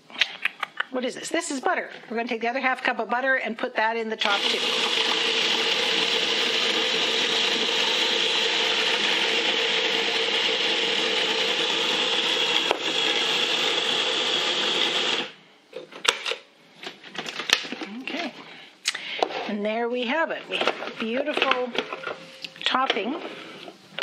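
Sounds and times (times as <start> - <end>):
food processor running: 4.2 - 15.4.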